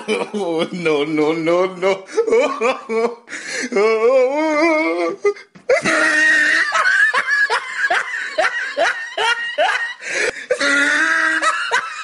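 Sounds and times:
high-pitched laughter: 0:05.7 - 0:12.0.

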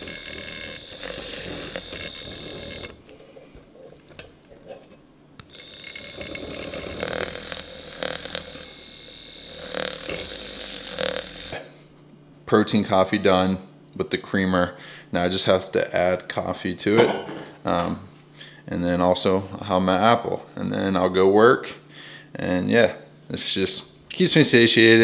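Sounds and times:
milk frother whirring: 0:00.0 - 0:03.9, 0:05.4 - 0:11.6.

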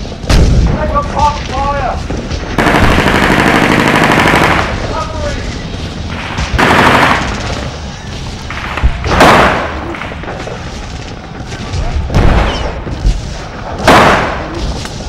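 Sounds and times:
machine-gun bursts: 0:02.6 - 0:04.7
loud gunshot: 0:09.0 - 0:09.8, 0:13.8 - 0:14.6.

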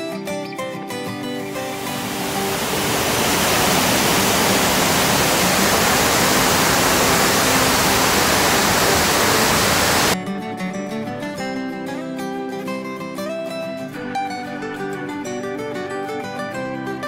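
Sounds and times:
waterfall rushing: 0:01.4 - 0:10.2
plucked guitar music: 0:10.3 - 0:17.0.

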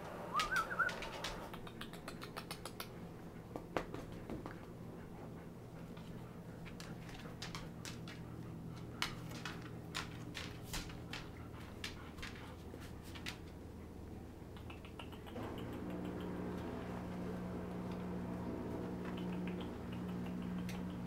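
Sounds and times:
steady low hum: 0:00.0 - 0:21.0
puppy claws scratching on floor: 0:00.4 - 0:02.9, 0:05.8 - 0:13.6.

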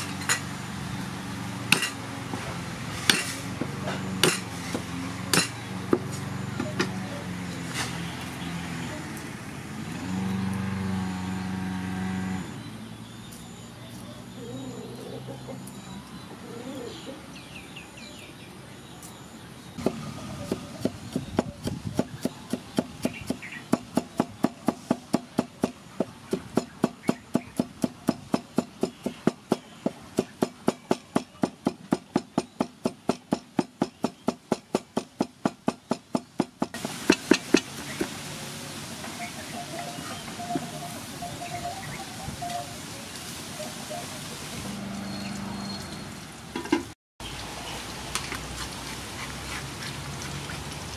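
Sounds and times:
cleaver chopping on wooden block: 0:01.7 - 0:02.0, 0:04.2 - 0:06.1, 0:19.8 - 0:38.2.

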